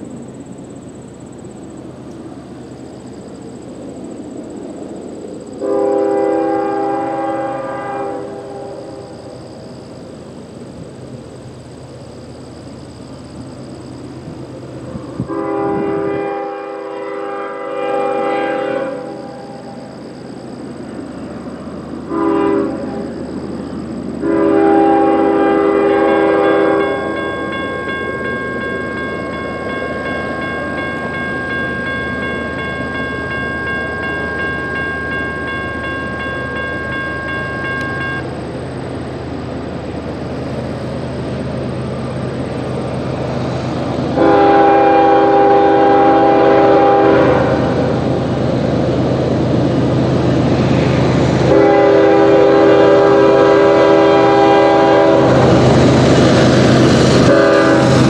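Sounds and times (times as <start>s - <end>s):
freight train rumble: 0.0s - 58.0s
train horn blasts: 5.6s - 9.3s, 15.2s - 19.9s, 22.1s - 23.2s, 24.2s - 32.0s, 32.6s - 38.2s, 44.1s - 48.1s, 51.4s - 55.7s, 57.2s - 58.0s
railroad crossing bell ringing: 25.2s - 38.4s.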